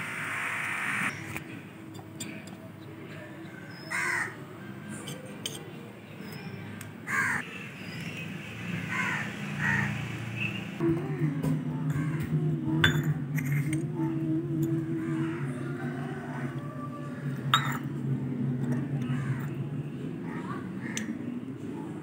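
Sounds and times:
crows cawing: 3.9s - 4.4s, 7.1s - 7.4s, 8.9s - 10.0s.

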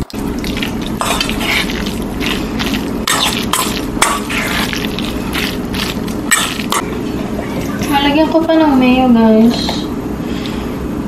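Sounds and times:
steady low hum: 0.0s - 11.0s
metal spoon scraping metal bowl: 0.4s - 6.8s.

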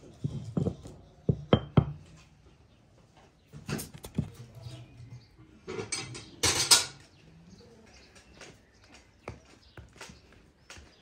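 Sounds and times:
glass knocking on wooden board: 0.6s - 2.0s.

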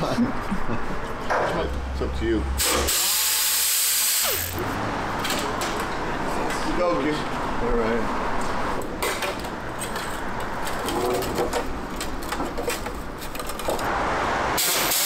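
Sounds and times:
pneumatic tool hissing: 2.6s - 4.6s, 14.6s - 15.0s.

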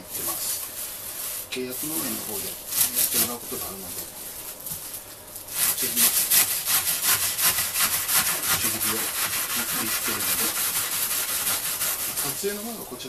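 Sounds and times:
knife sawing through lemongrass: 1.8s - 4.0s, 5.5s - 12.8s.

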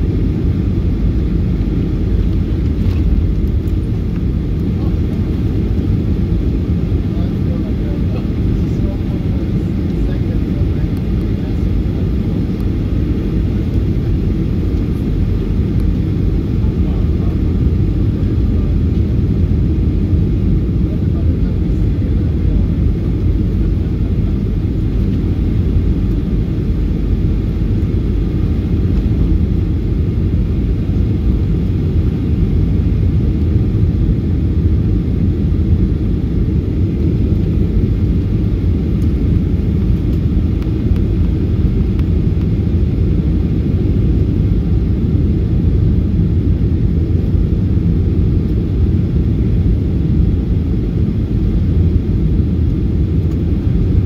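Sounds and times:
airplane cabin engine rumble: 0.0s - 54.0s.

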